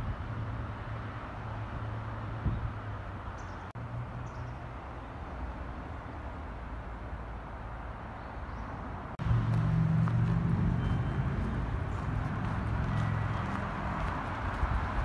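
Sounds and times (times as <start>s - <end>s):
low outdoor hum and rumble: 8.9s - 15.0s.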